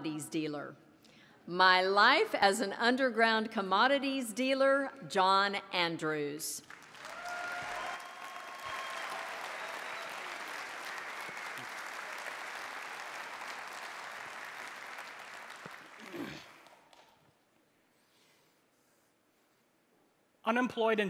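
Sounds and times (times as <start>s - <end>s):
audience applauding: 6.6s - 17.1s.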